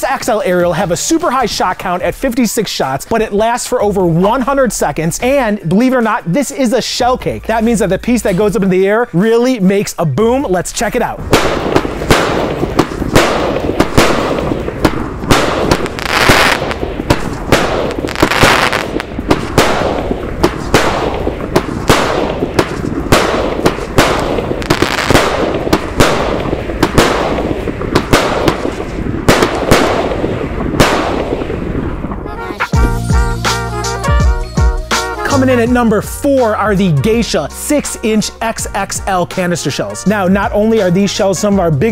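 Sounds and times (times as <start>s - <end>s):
fireworks booming: 11.0s - 33.7s, 34.9s - 37.2s
fireworks hissing: 11.1s - 33.7s.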